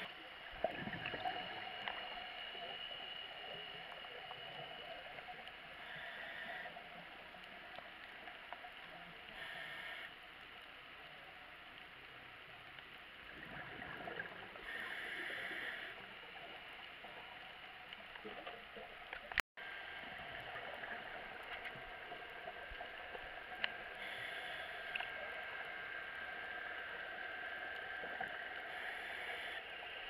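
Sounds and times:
muffled hiss of water: 0.0 - 30.0
exhaled bubbles rushing underwater: 0.4 - 4.8, 13.2 - 14.7.

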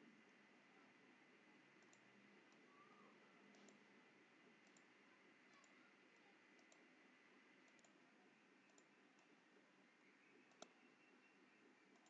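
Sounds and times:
faint room hiss: 0.0 - 12.0
faint short clicks: 10.4 - 10.8.

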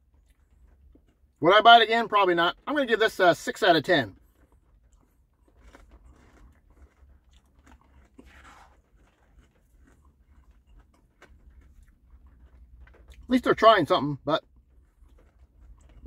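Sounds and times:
faint chewing: 0.0 - 1.4, 3.9 - 13.5, 14.4 - 16.0.

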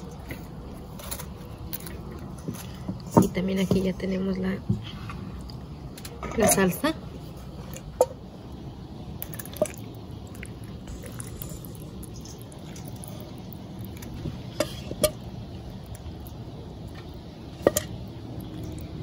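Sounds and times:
sauce pouring and dripping: 7.7 - 19.0.

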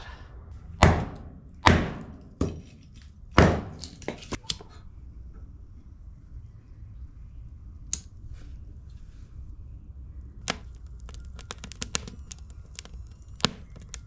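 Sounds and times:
firewood being broken: 10.5 - 14.0.

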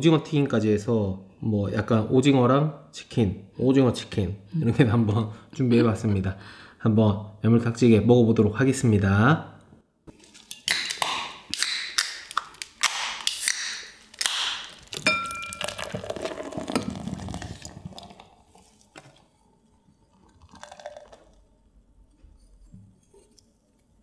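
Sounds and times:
cans and glasses clinking: 14.8 - 18.2, 20.4 - 21.3
beer pouring into glasses: 14.8 - 21.6.

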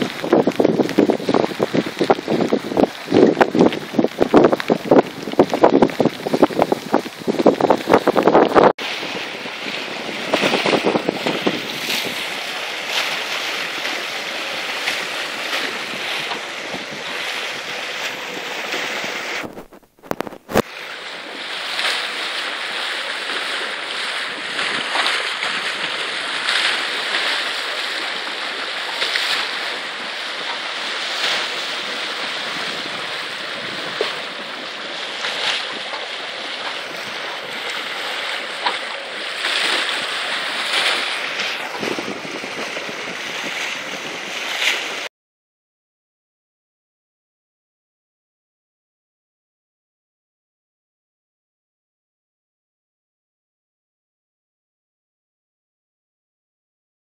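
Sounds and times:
water rushing along a hull: 0.0 - 45.1
wind on microphone: 0.0 - 45.1.

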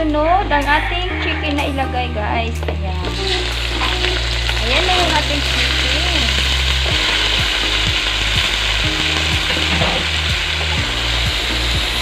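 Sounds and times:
chicken sizzling in hot oil: 3.0 - 12.0.

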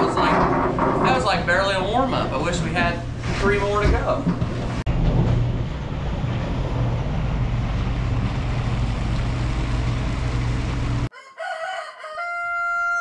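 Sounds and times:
diesel truck engine running: 4.9 - 11.1.

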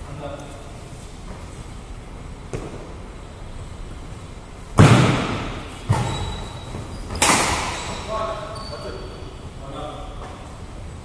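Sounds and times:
racket hitting shuttlecock: 7.1 - 7.8.

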